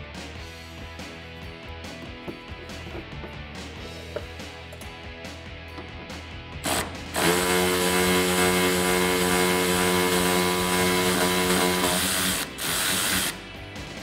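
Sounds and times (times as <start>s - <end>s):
cordless ratchet motor whine: 6.7s - 13.4s.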